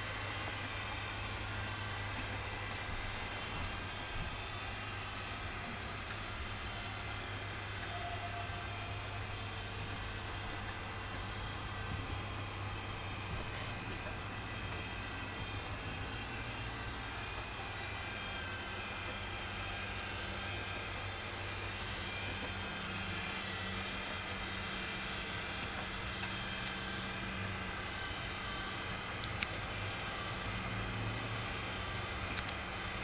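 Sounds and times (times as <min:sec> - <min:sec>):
machinery hum and hiss: 0:00.0 - 0:33.0.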